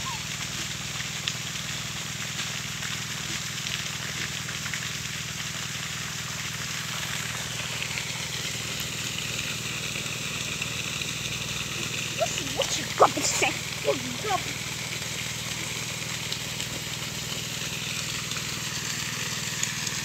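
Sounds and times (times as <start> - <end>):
outdoor background hiss: 7.3 - 19.6.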